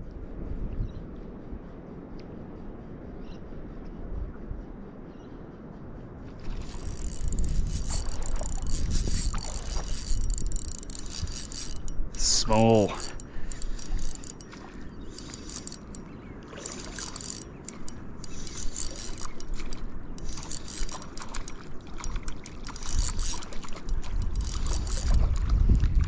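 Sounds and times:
water lapping: 6.2 - 26.0
fishing reel gears clicking: 6.4 - 25.5.

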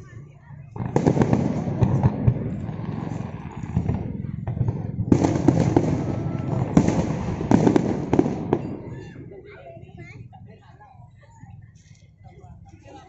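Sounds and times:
fireworks bursting and crackling: 0.6 - 9.9.

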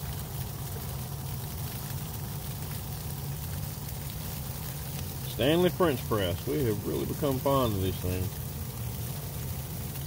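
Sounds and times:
gas stove burner hissing: 4.2 - 10.0.

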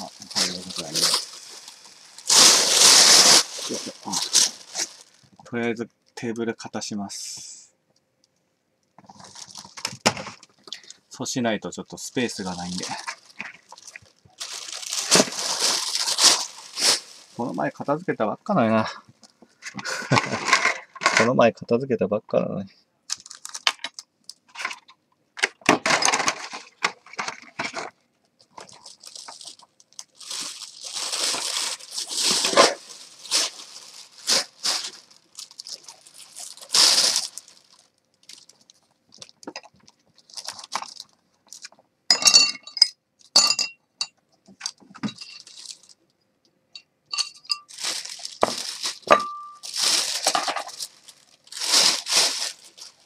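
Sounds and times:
plastic bag rustling: 0.0 - 5.5, 9.0 - 11.0, 12.1 - 18.1, 19.5 - 21.2, 23.1 - 24.9, 25.8 - 41.8, 44.6 - 46.0, 47.2 - 53.0
dishes and bottles clinking: 42.1 - 44.2, 44.9 - 45.5, 47.1 - 47.7, 48.4 - 49.7.

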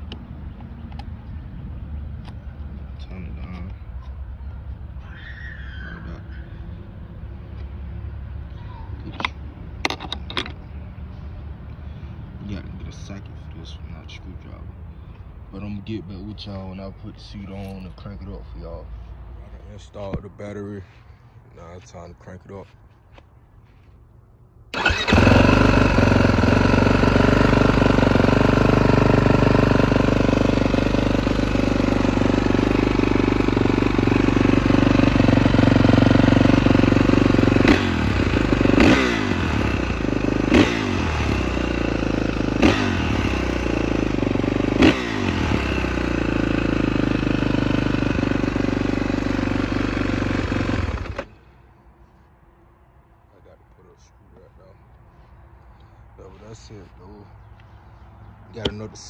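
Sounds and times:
engine throttle blips: 24.7 - 51.7
motorcycle engine idling: 24.8 - 51.7.

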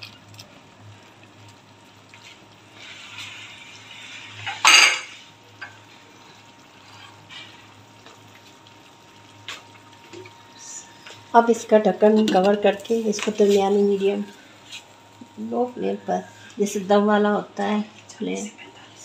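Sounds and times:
spatula stirring wet curry: 6.7 - 7.7.

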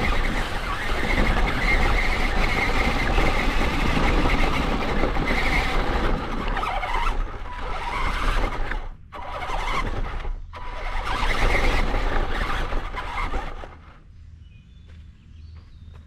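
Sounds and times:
rc car motor and gears: 0.0 - 14.0
faint bird chirps: 14.0 - 16.0.

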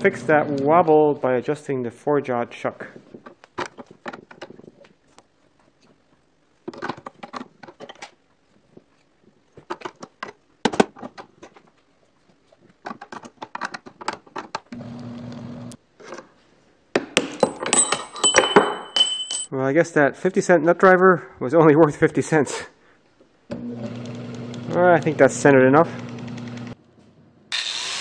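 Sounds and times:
metallic clatter with ringing: 17.4 - 19.5.

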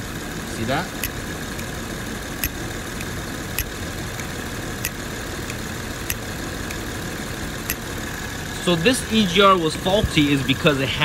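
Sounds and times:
car engine idling: 0.0 - 11.0
valve clicking: 1.0 - 8.0.

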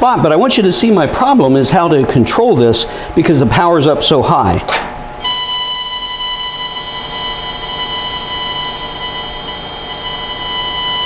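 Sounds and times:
high electronic beep: 5.2 - 11.0.

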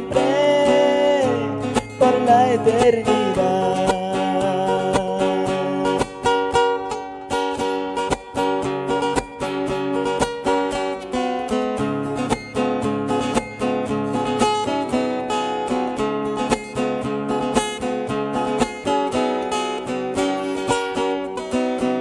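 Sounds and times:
acoustic guitar strumming: 0.0 - 22.0.

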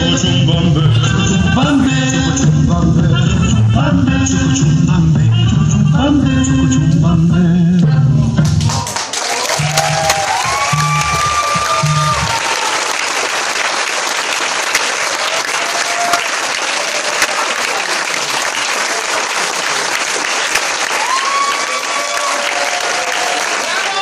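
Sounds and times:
music: 0.0 - 9.0, 9.6 - 12.4
audience applauding: 8.6 - 24.0.

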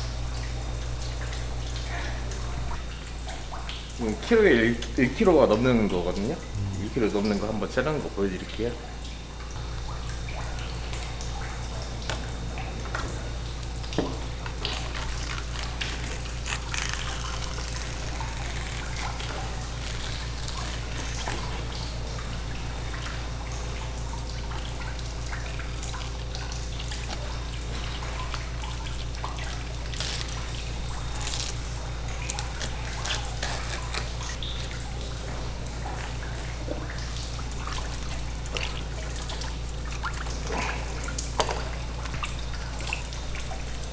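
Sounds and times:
faucet water trickling: 0.0 - 43.9
low hum: 6.4 - 7.3.

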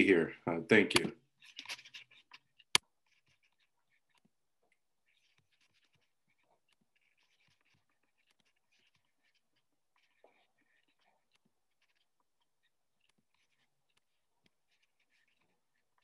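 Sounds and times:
sharp click: 0.9 - 1.1.

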